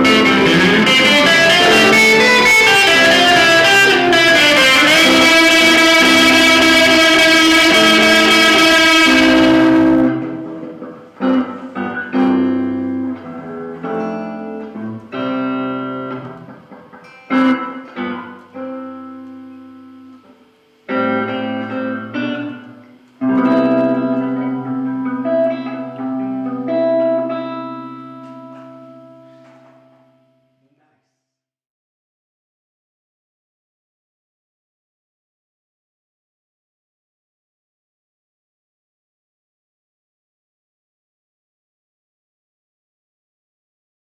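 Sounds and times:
electric guitars playing chords: 0.0s - 30.4s.

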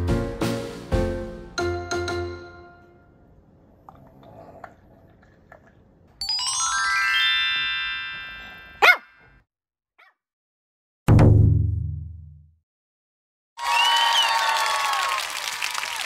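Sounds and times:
rising chime sound effect: 6.2s - 8.8s
small dog barking: 8.8s - 9.2s.

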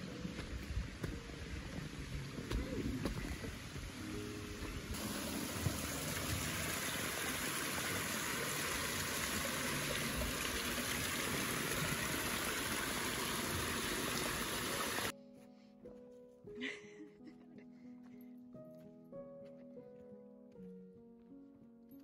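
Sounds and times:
stream rushing over rock: 4.9s - 15.1s.

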